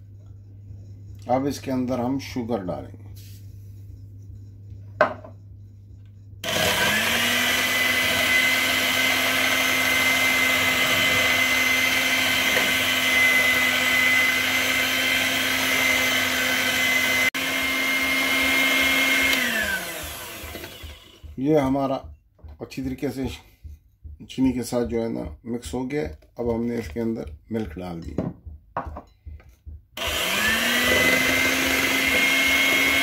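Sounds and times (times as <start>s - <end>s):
electric hand mixer whining: 6.4s - 21.5s, 30.0s - 33.0s.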